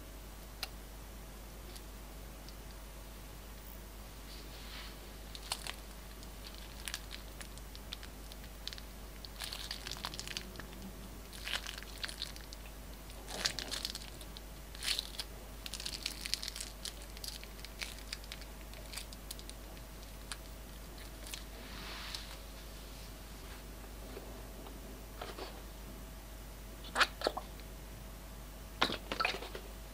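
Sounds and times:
plastic piping bag crinkling: 5.3 - 21.5
sticky slime crackles: 5.3 - 21.5.

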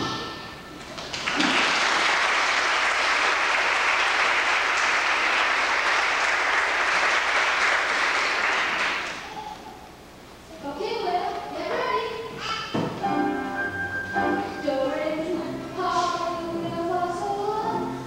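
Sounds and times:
audience applauding: 0.8 - 9.4.

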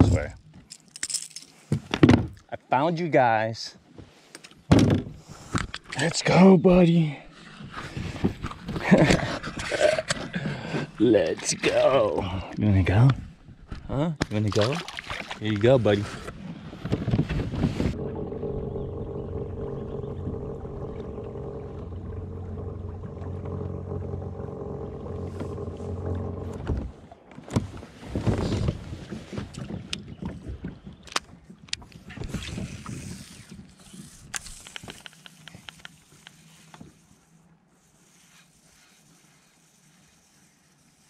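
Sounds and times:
electric trolling motor humming: 18.0 - 27.2
fishing rod and reel clicks: 32.5 - 36.8.

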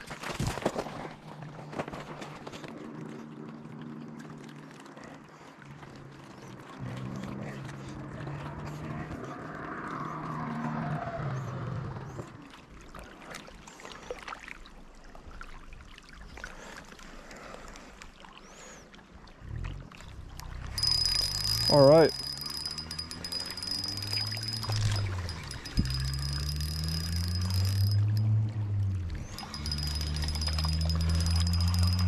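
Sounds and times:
engine passing by: 6.8 - 12.5, 20.5 - 32.0.

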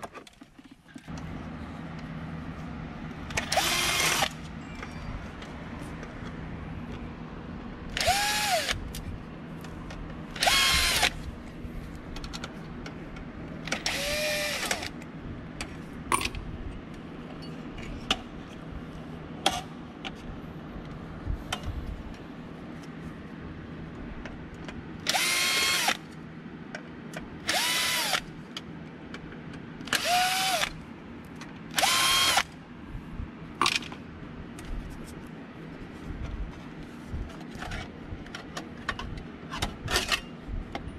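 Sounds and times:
cordless drill whining: 3.4 - 4.4, 8.0 - 8.8, 10.4 - 11.2, 13.8 - 14.9, 25.1 - 26.0, 27.5 - 28.3, 29.9 - 30.8, 31.8 - 32.5.

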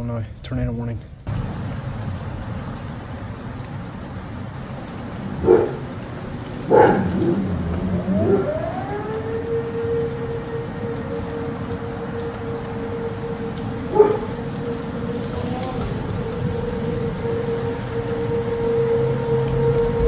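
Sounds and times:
rain hiss: 0.0 - 20.0
warning siren winding up: 4.4 - 20.0
dog barking: 5.4 - 6.0, 6.6 - 7.5, 13.9 - 14.4.

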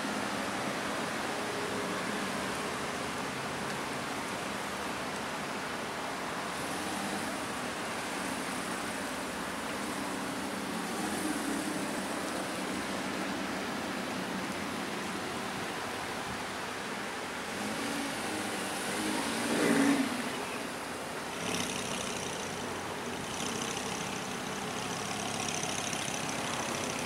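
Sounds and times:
background hiss: 0.0 - 27.0
car engine at low revs: 17.3 - 27.0.

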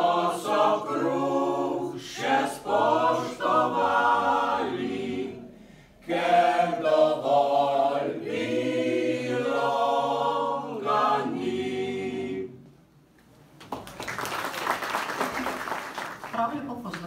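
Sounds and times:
mixed choir singing in harmony: 0.0 - 12.8
people clapping: 13.6 - 17.0.

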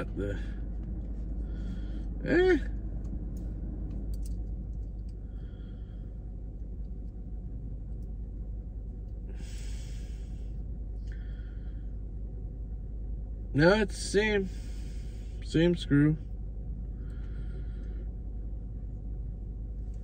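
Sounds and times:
low steady hum: 0.0 - 20.0
breathy exhale: 1.4 - 2.1, 5.2 - 6.2, 9.3 - 12.0, 14.5 - 15.4, 17.0 - 18.2
man humming: 2.2 - 2.7.

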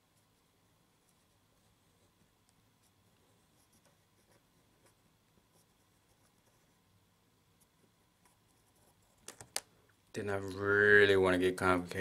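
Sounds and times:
pencil scratching on paper: 0.0 - 6.9, 7.6 - 9.2
quiet room hum: 0.0 - 12.0.

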